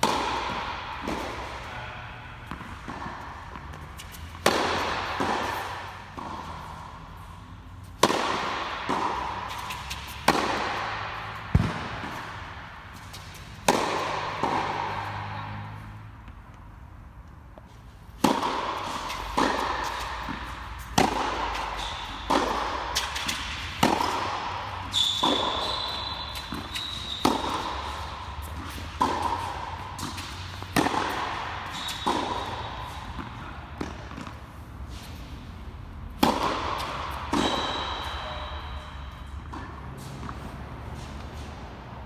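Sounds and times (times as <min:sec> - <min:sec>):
tennis ball hit with rackets: 0:00.0 - 0:16.6, 0:17.2 - 0:42.0
shoes squeaking on court: 0:09.2 - 0:10.6, 0:18.8 - 0:35.4, 0:36.4 - 0:41.8.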